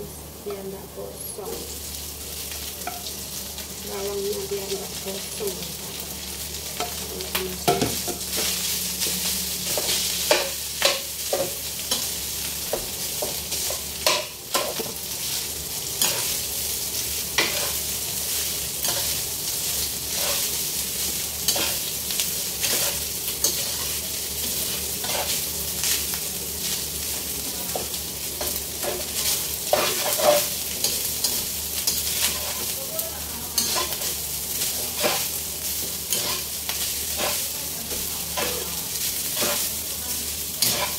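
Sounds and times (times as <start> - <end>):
rice sizzling in a wok: 0.0 - 40.9
metal spatula scraping a pan: 16.0 - 16.4, 20.1 - 20.6, 21.4 - 21.9, 22.6 - 24.0, 28.4 - 32.7, 33.6 - 35.4, 36.0 - 36.5, 38.3 - 39.8, 40.6 - 40.9.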